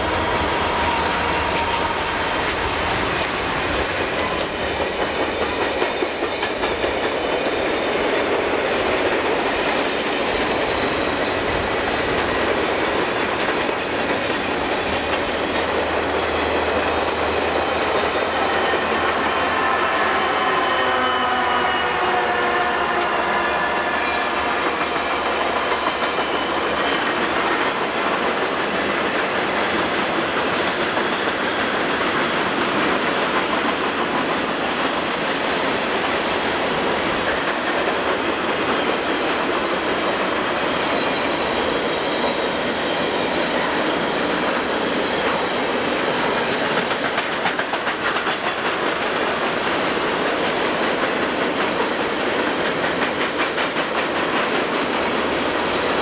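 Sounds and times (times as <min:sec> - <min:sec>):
locomotive whine: 0:00.0 - 0:30.4
freight trains rumbling: 0:00.0 - 0:56.0
wheels clicking over rail joints: 0:01.0 - 0:10.6, 0:46.3 - 0:55.5.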